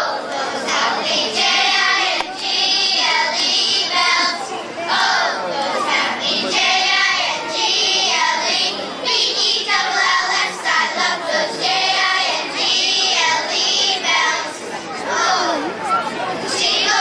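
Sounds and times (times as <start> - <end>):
crowd singing with children: 0.0 - 17.0.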